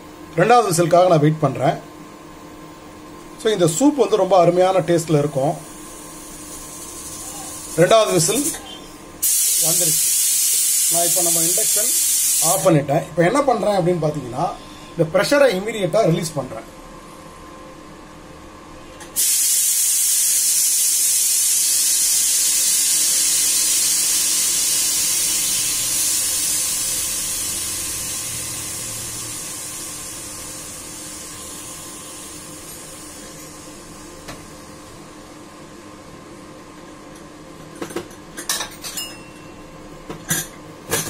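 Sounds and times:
pressure cooker steam hissing: 5.5 - 12.7, 19.2 - 34.1.

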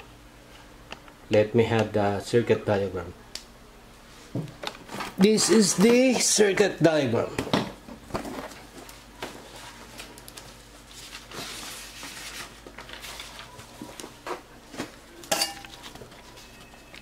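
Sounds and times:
notebook pages turning: 8.1 - 14.4
paper rustling: 8.1 - 15.0.

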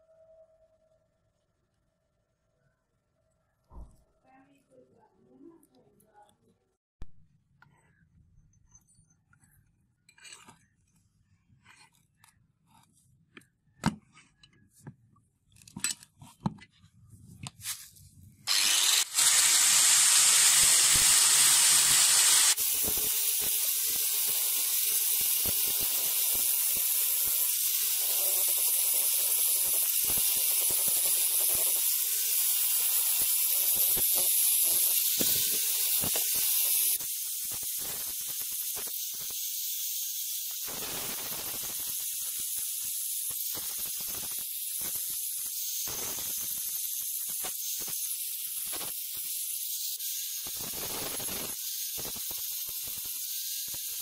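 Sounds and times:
angle grinder grinding steel: 18.5 - 54.0.

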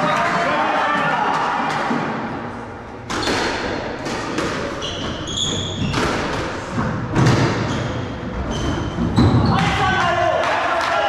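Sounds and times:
squash ball struck by rackets: 3.1 - 4.8, 5.9 - 7.7
shoes squeaking on wooden floor: 4.6 - 6.3, 7.5 - 9.6.

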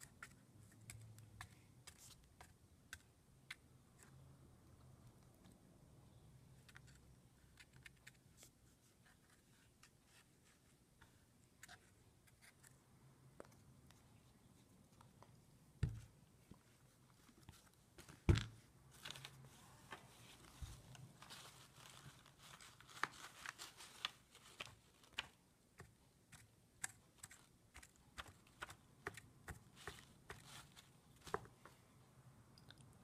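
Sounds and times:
ticks and taps of items handled: 15.8 - 16.1, 31.2 - 31.8.

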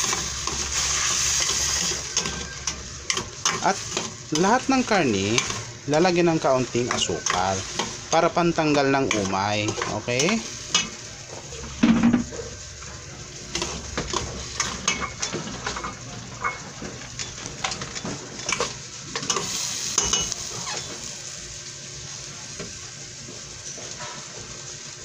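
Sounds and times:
spatula scraping a pan: 0.0 - 11.0, 17.7 - 21.0
liver sizzling in a pan: 0.0 - 25.0
spatula clattering against pan: 6.8 - 8.0.

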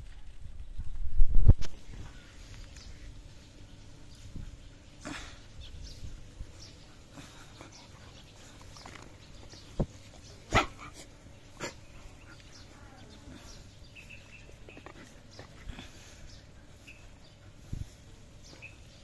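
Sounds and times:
dogs barking: 10.5 - 12.3.

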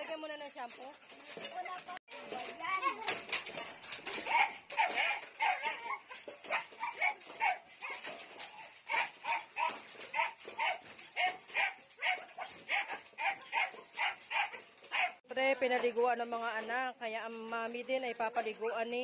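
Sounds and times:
dog barking: 4.1 - 8.2, 8.9 - 15.2.

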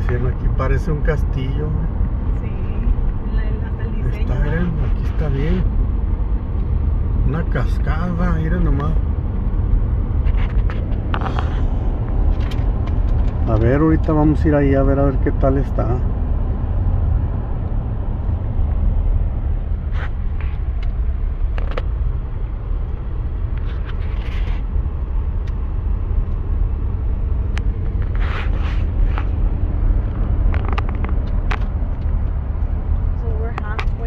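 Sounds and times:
car driving cabin rumble: 0.0 - 34.0
clicks and rustles: 9.7 - 13.6, 30.1 - 32.7.

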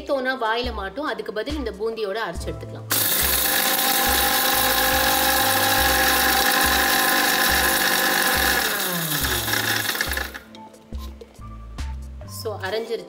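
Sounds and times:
mixer grinder motor running: 2.9 - 10.5.

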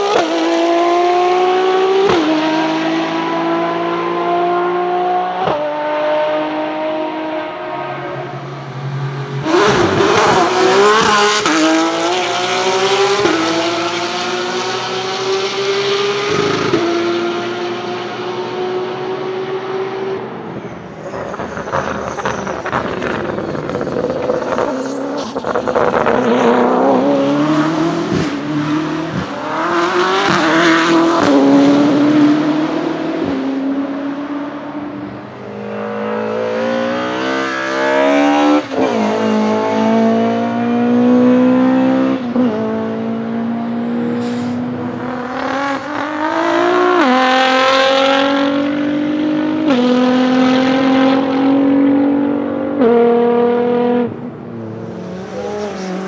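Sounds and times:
race car engine accelerating: 0.0 - 56.0
exhaust pops and crackles: 21.4 - 26.2.

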